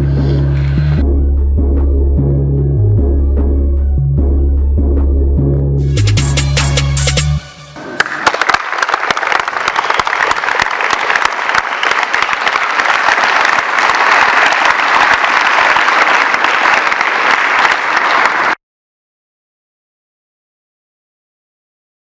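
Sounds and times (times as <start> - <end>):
crowd applause: 7.8 - 18.6.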